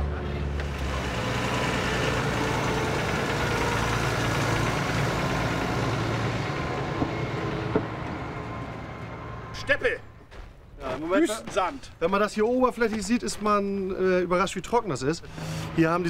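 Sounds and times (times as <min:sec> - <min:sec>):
tractor diesel engine running: 0:00.0 - 0:10.3.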